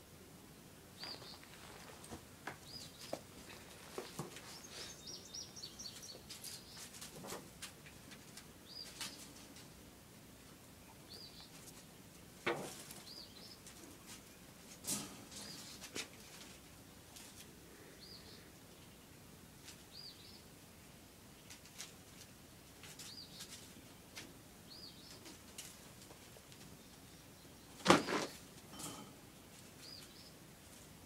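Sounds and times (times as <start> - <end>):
small bird chirping: 0.9 - 2.0, 2.6 - 7.0, 8.6 - 9.4, 10.8 - 11.9, 12.9 - 13.8, 15.3 - 20.5, 22.9 - 24.0, 24.6 - 25.4, 29.8 - 30.4.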